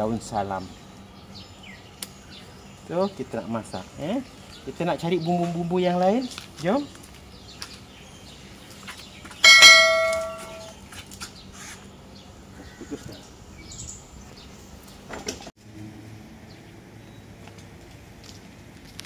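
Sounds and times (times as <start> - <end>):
metallic ring: 9.4 - 10.8.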